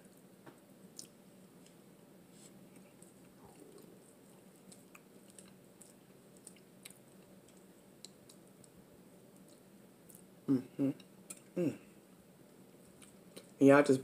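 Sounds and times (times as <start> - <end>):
faint chewing: 0.0 - 11.9, 12.6 - 13.6
mouth clicks and smacks: 9.3 - 11.6.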